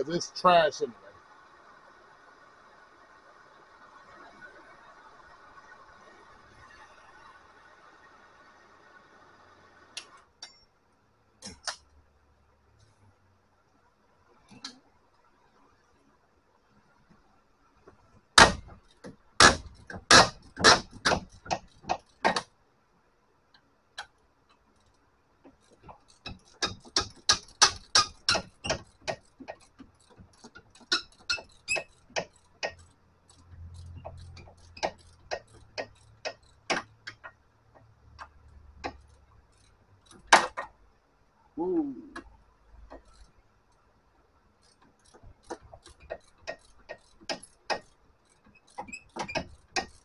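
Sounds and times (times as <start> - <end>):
ratchet wrench clicking: 18.5 - 22.5, 24.0 - 40.8, 42.2 - 43.9, 44.6 - 50.0.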